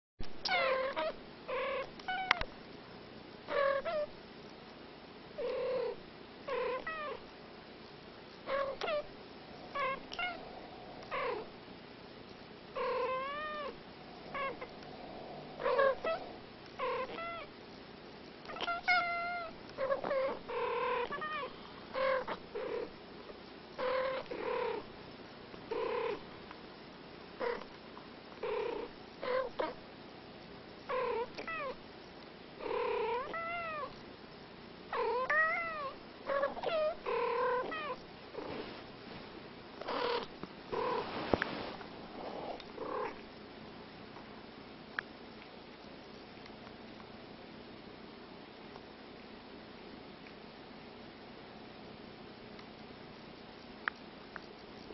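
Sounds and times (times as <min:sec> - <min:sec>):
cats chirping meows: 0:17.0 - 0:17.5, 0:18.5 - 0:20.4, 0:21.0 - 0:22.4, 0:35.1 - 0:38.0.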